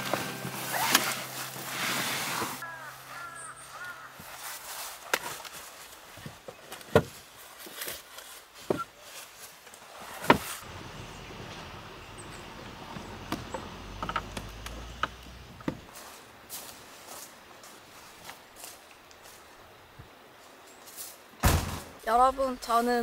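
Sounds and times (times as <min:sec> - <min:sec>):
background music: 0:00.0 - 0:03.6
animal calls: 0:02.6 - 0:04.4
camping gear knocking and clunking: 0:05.1 - 0:08.9, 0:12.8 - 0:16.0.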